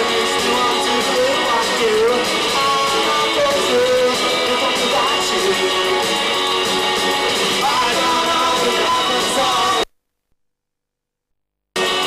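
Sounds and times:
man singing: 0.0s - 6.4s, 7.4s - 9.9s
electric guitars: 0.0s - 9.8s, 11.8s - 12.0s
drums: 0.0s - 9.9s, 11.8s - 12.0s.

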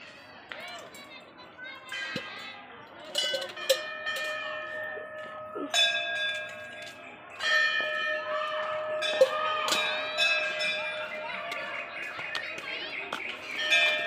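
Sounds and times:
metal temple bell ringing: 1.9s - 11.9s, 13.5s - 14.0s.

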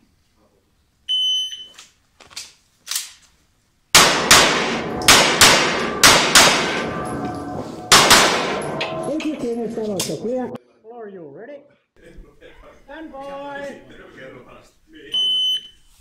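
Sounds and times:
pistol shots echoing indoors: 3.9s - 9.4s.

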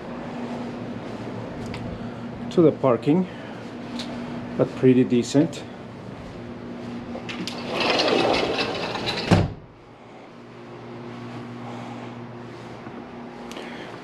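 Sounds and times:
steady low hum: 0.0s - 14.0s
sliding glass door rolling: 7.3s - 9.6s
door shutting thud: 9.1s - 9.6s.

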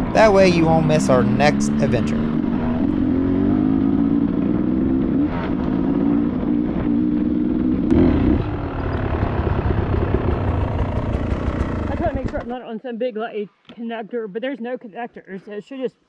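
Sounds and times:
two-stroke dirt bike engine: 0.0s - 12.6s.

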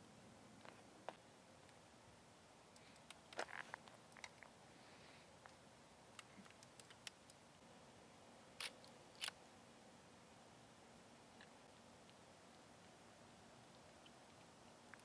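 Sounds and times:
faint clicks and ticks: 2.7s - 4.5s, 5.4s - 7.4s, 13.6s - 15.0s.

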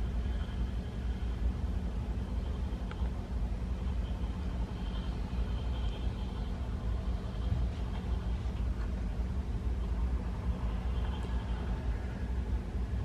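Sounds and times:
faint high hum: 0.0s - 13.0s
low background rumble: 0.0s - 13.0s.

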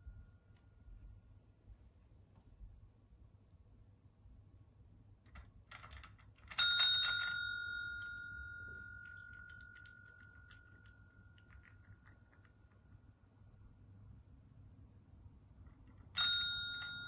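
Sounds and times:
paw clicking on bell: 5.7s - 12.9s, 15.9s - 17.0s
desk bell ding: 6.6s - 11.4s, 16.2s - 17.0s.

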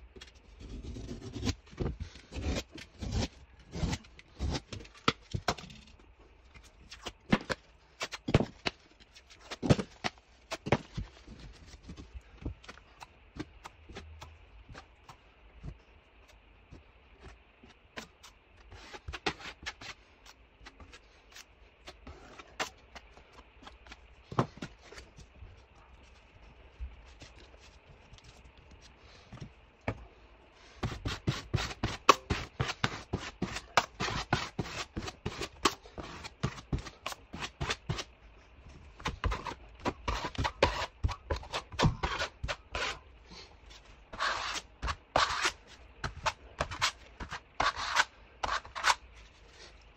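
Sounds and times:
taping knife scraping: 0.6s - 5.0s, 30.8s - 38.1s, 39.0s - 43.0s, 44.1s - 49.8s
utility knife cutting plasterboard: 0.6s - 5.9s, 30.8s - 38.1s, 39.0s - 43.0s, 44.1s - 49.1s.

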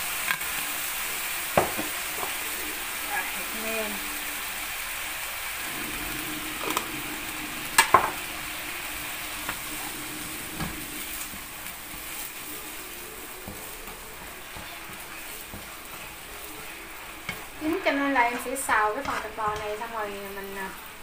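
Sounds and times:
meat sizzling in a frying pan: 0.0s - 21.0s
spatula stirring in pan: 5.6s - 21.0s.

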